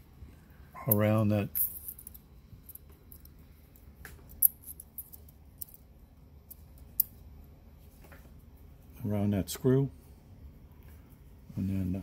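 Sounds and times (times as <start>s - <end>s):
small clicks of metal parts: 0.9s - 7.2s.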